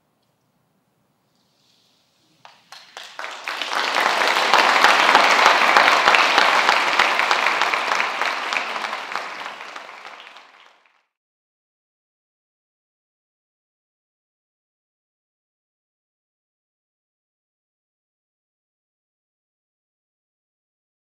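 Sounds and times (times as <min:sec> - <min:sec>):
audience applauding: 0:02.4 - 0:11.1.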